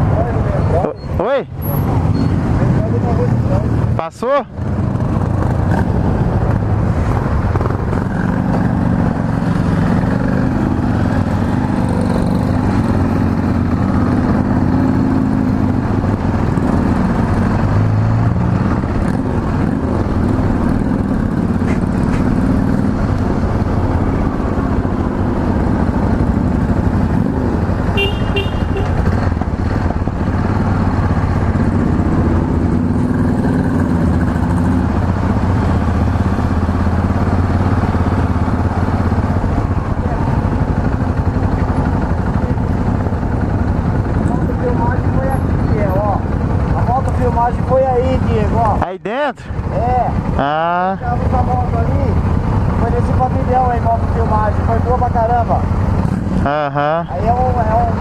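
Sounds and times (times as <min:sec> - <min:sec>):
motorcycle engine running: 0:01.6 - 0:48.8, 0:49.4 - 0:58.0
short horn beep: 0:28.0 - 0:29.0.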